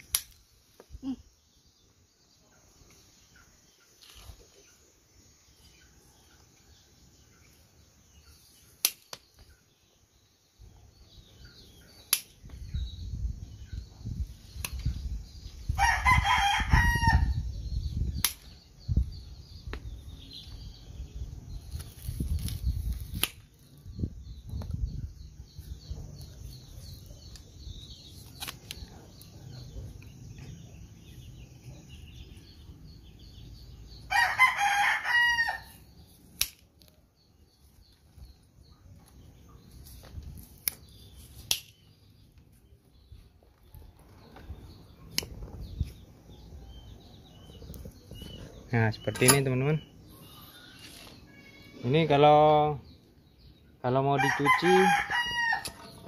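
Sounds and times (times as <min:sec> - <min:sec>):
rooster crowing: 0:15.8 - 0:17.4, 0:34.1 - 0:35.7, 0:54.2 - 0:56.0.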